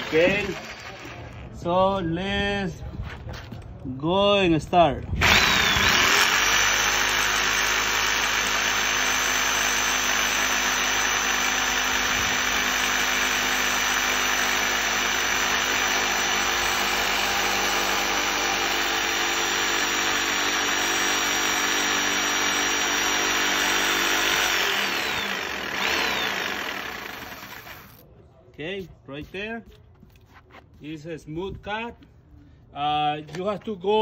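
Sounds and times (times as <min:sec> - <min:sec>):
jigsaw cutting wood: 0:00.0 - 0:01.1, 0:05.2 - 0:28.0.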